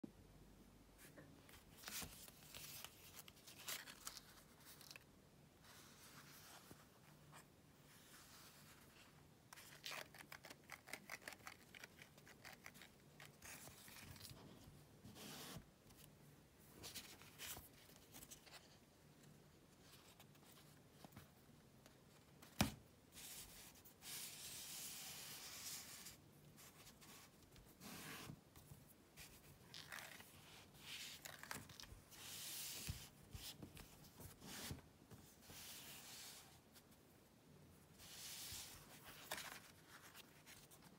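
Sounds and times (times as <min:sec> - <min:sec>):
paper card rustling: 0:01.5 - 0:05.1, 0:38.0 - 0:40.9.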